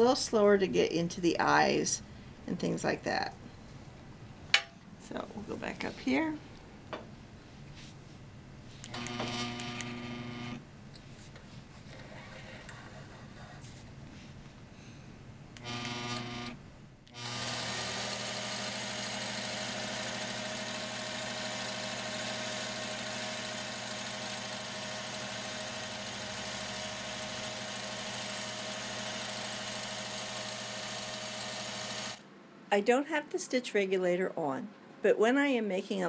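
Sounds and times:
quilting machine stitching: 8.9s - 10.6s, 15.6s - 32.2s.

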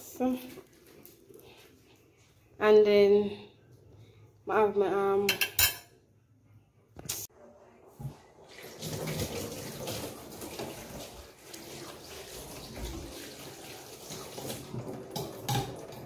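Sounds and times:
tap water running into sink: 8.0s - 16.0s.

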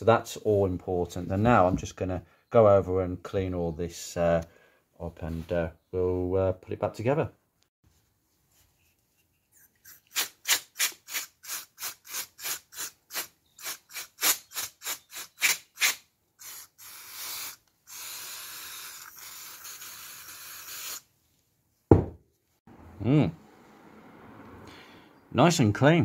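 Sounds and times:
aerosol can spraying: 9.8s - 21.0s.

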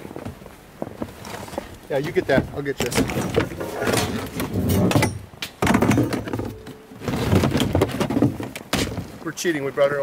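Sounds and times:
firewood logs clunking: 0.0s - 9.4s
plastic crate scraping: 1.0s - 9.3s.

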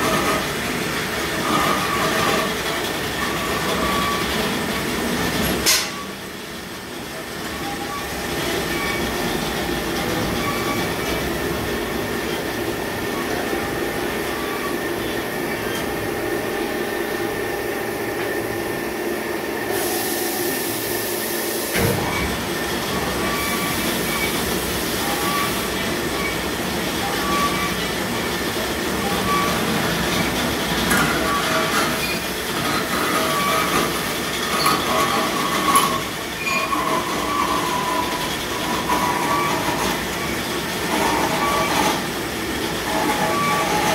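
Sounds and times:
burst of hiss: 19.7s - 21.8s.

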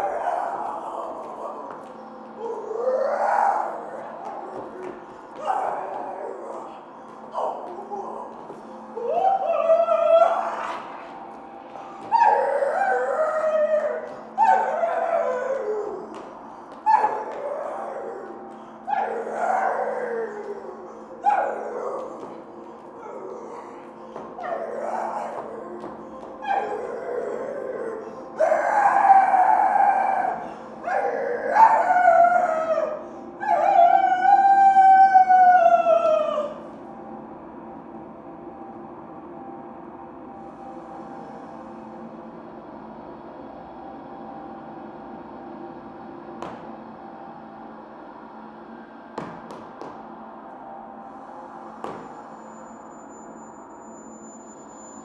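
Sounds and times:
howl-like cries: 0.0s - 37.2s.

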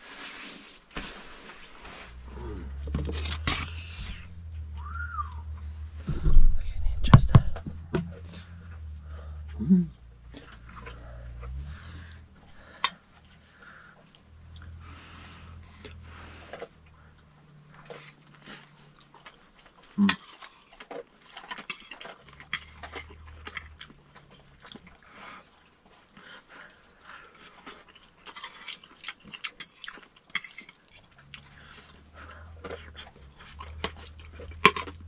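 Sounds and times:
chewing and lip smacks: 15.7s - 35.0s.

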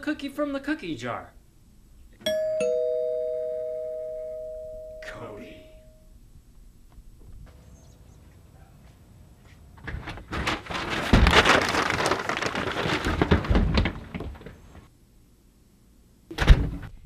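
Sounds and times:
scuffling and falling debris: 9.8s - 14.9s.

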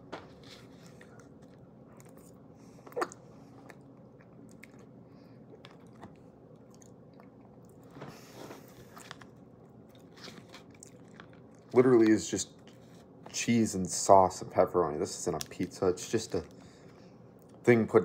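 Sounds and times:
person chewing food: 0.3s - 13.3s.

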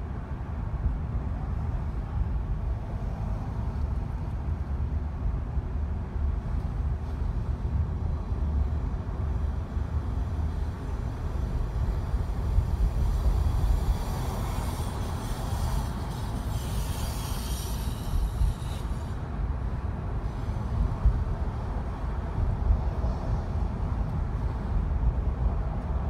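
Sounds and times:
car tyres and engine rumble: 0.0s - 26.0s
thin high whine: 13.3s - 19.2s.

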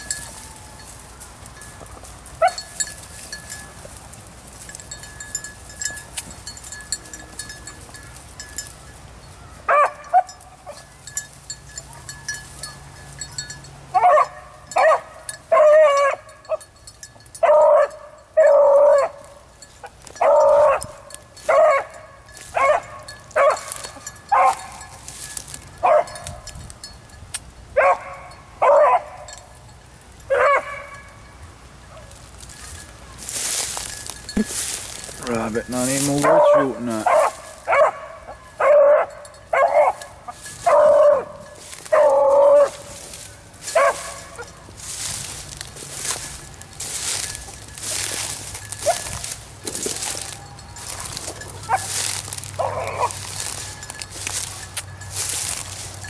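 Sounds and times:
dog baying: 36.2s - 42.9s, 50.2s - 54.0s.

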